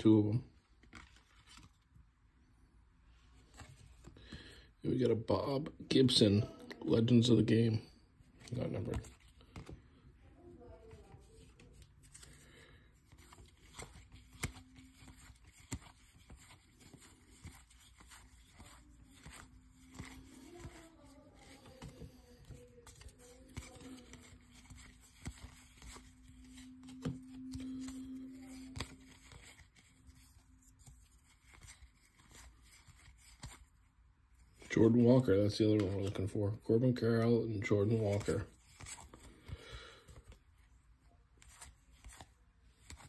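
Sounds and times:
cards flipped by hand: 0.7 - 2.0, 3.3 - 4.4, 8.3 - 10.0, 10.8 - 33.8, 37.9 - 40.6, 41.3 - 43.0.

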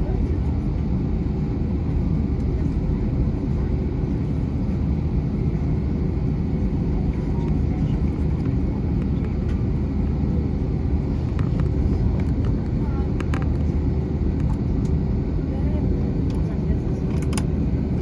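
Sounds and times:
aircraft cabin rumble while taxiing: 0.0 - 18.0.

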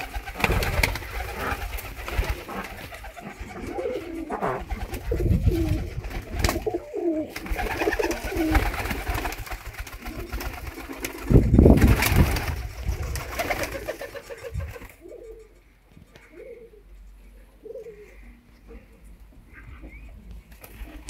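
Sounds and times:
wings flapping: 0.0 - 15.5, 20.3 - 21.0
pigeons cooing: 0.0 - 21.0.

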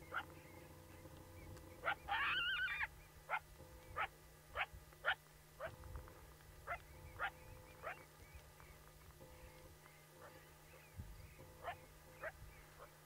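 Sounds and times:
coyote yipping: 0.0 - 6.0, 6.6 - 8.1, 10.2 - 13.0
coyote whining: 0.0 - 8.8, 9.4 - 13.0.

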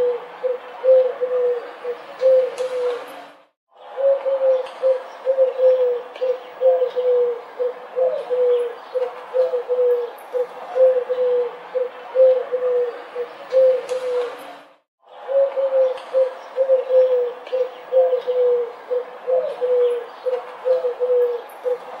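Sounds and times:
pigeons cooing: 0.0 - 3.2, 3.8 - 22.0.

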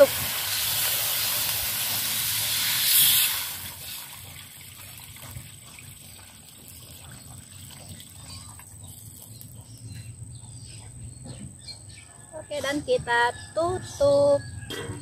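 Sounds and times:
water sizzling in hot pan: 0.0 - 5.5
water pouring trickle: 0.0 - 9.5.

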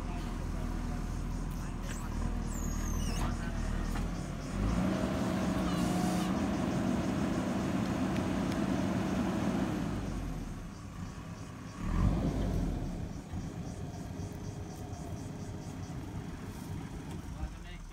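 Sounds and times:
diesel engine under load: 0.0 - 17.9.

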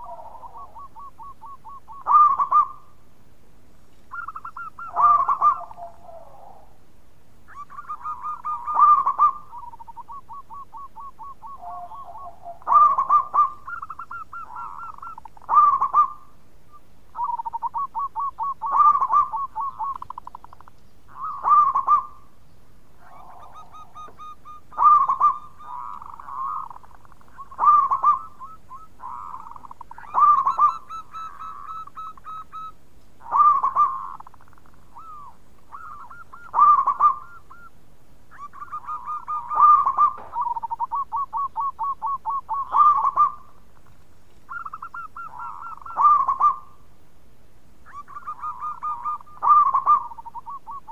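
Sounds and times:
dove cooing song: 0.0 - 3.0, 4.1 - 6.9, 7.5 - 46.9, 47.8 - 50.9.

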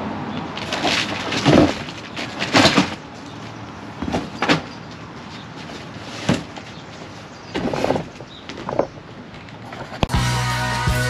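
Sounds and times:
cardboard boxes rustling and knocking: 0.6 - 3.2, 4.0 - 9.0.

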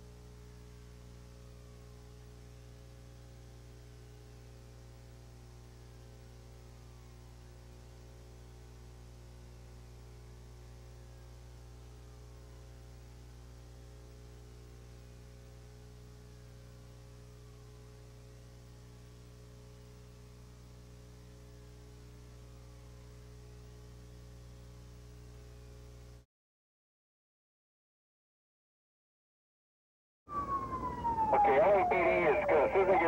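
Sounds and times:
tape hiss: 0.0 - 26.2, 31.2 - 33.0
electrical hum: 30.3 - 33.0
faint whine sliding in pitch: 30.3 - 33.0.

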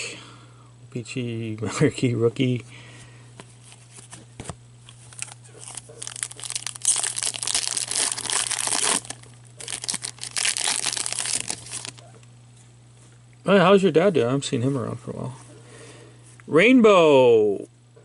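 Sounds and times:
foil wrapper crinkling and tearing: 4.9 - 12.0.

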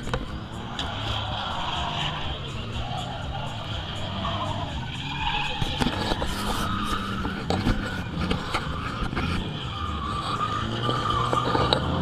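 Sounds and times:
car engines running: 0.0 - 12.0
tyre squeal: 0.0 - 12.0.

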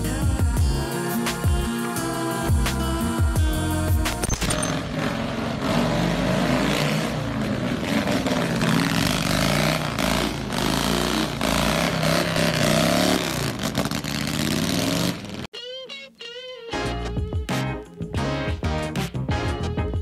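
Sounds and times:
motorcycle engine revving: 0.0 - 15.5.

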